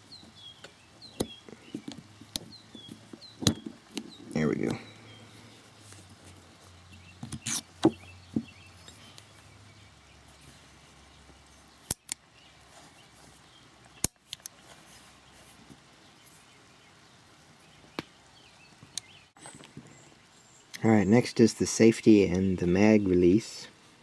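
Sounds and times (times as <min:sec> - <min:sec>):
sharp metallic clicks: 0:11.8 - 0:12.2.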